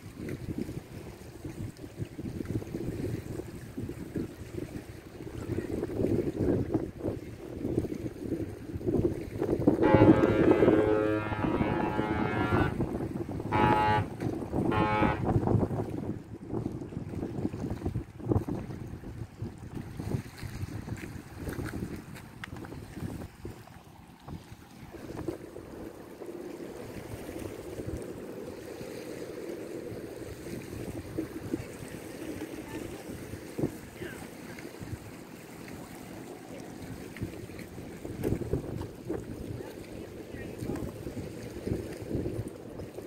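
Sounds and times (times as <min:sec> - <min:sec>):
wind rumble on microphone: 0:00.0 - 0:43.0
ship horn blasts: 0:09.7 - 0:16.1.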